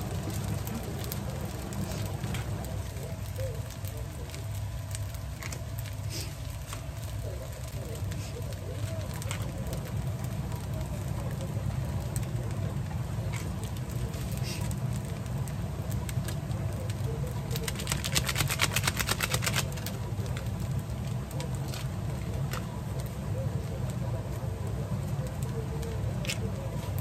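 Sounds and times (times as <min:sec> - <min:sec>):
food frying in a pan: 0:00.0 - 0:27.0
rapid clicking: 0:16.0 - 0:23.4.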